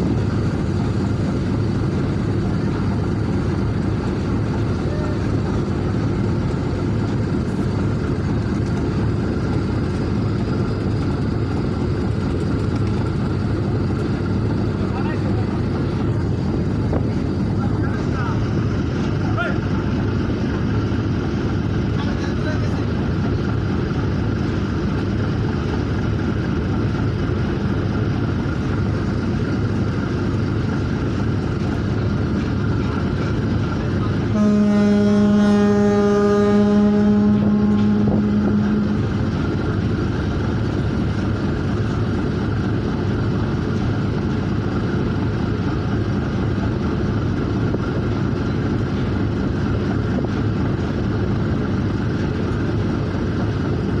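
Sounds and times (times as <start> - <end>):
boat engine drone: 0.0 - 54.0
water and wind noise: 0.0 - 54.0
ship's horn blast: 34.3 - 39.8.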